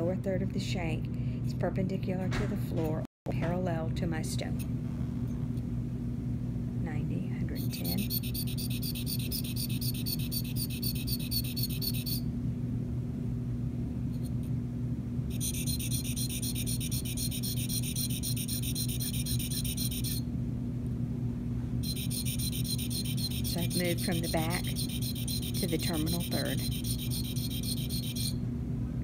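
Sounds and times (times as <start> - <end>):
steady low hum: 0.0 - 29.0
metal scraping on sharpening stone: 7.6 - 12.2, 15.3 - 20.2, 21.8 - 28.4.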